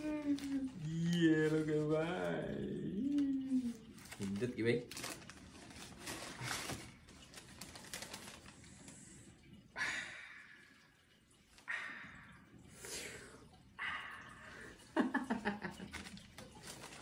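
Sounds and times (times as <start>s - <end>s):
tissue paper rustling: 0.0s - 2.3s, 3.1s - 8.9s, 15.7s - 17.0s.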